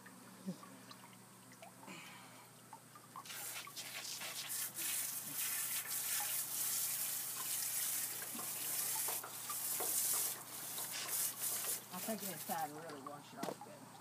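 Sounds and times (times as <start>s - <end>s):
hose water spraying and splashing: 3.2s - 13.1s.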